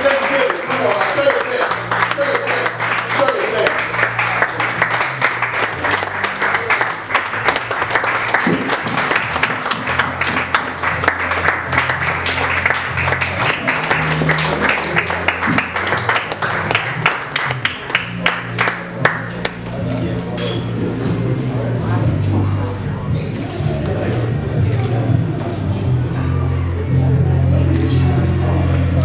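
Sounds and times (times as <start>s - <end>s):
audience applauding: 0.0s - 19.7s
music with low bass line: 3.8s - 29.0s.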